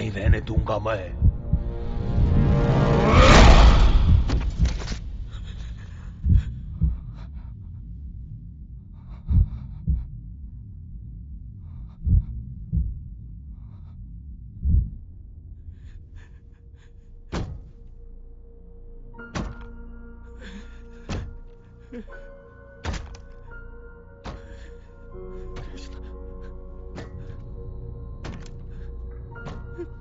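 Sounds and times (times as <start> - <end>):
heartbeat thumps: 0.0 - 2.9, 4.0 - 7.5, 9.0 - 13.8, 14.6 - 15.2.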